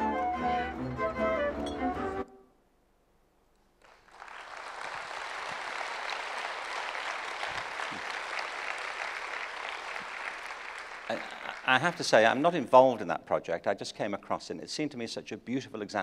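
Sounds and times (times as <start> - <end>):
music: 0.0 - 2.6
audience applause: 3.8 - 12.5.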